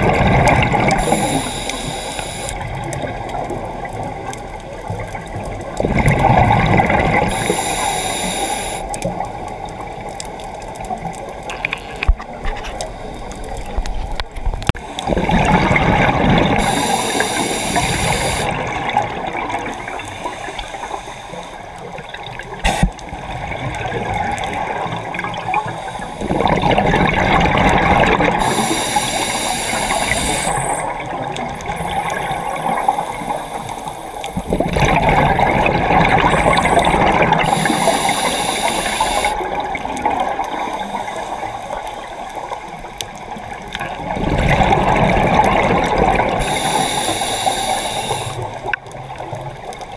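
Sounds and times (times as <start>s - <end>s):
bubbling exhaled air: 0.0s - 3.2s, 5.8s - 9.2s, 14.8s - 21.1s, 22.6s - 42.2s, 43.8s - 48.8s
hissing regulator breath: 0.9s - 2.6s, 7.3s - 9.0s, 16.6s - 18.6s, 19.8s - 21.7s, 25.5s - 26.5s, 28.4s - 31.0s, 37.4s - 39.4s, 46.4s - 48.6s.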